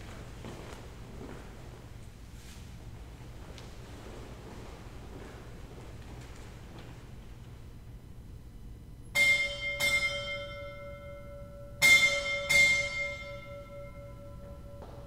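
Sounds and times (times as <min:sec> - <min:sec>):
small bell ringing: 0:09.2 - 0:15.0.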